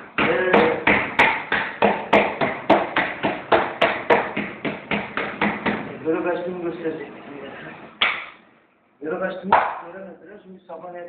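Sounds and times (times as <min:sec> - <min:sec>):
hands slapping bread dough: 0:00.2 - 0:05.9.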